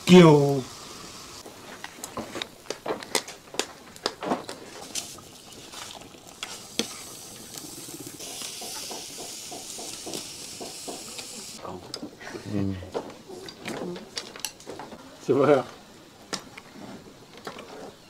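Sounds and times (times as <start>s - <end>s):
tofu sizzling in hot oil: 0.1s - 1.4s, 4.8s - 11.6s.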